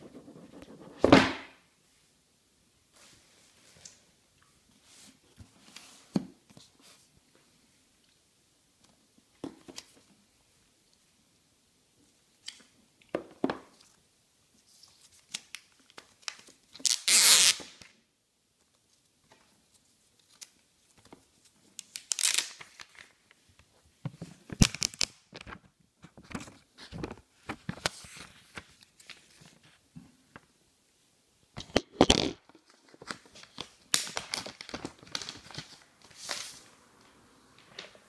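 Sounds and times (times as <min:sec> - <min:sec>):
packaging rustling and crinkling: 0:32.0 - 0:36.7.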